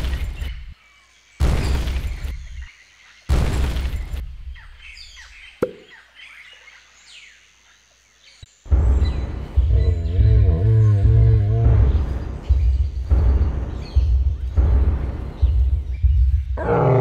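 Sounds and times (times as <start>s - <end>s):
birds chirping softly: 0.0s - 17.0s
faint night background: 0.0s - 17.0s
deep booming thuds: 8.7s - 17.0s.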